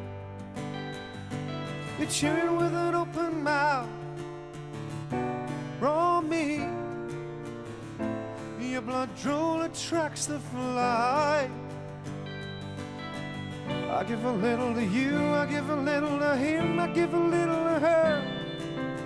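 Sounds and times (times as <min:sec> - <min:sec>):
acoustic guitar: 0:00.0 - 0:19.0
man singing: 0:01.9 - 0:04.2, 0:05.8 - 0:06.9, 0:08.5 - 0:11.8, 0:13.8 - 0:19.0.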